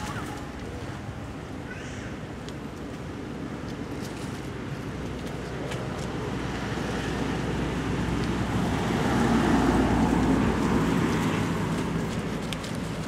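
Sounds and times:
motor vehicle passing: 5.7 - 13.0.

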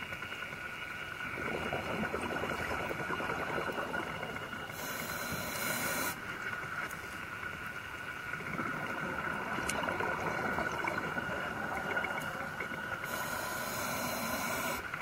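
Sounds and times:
faint steady whine: 0.0 - 15.0
underwater bubbling rush: 1.1 - 15.0
air hissing through regulator: 4.4 - 6.2, 12.9 - 15.0.

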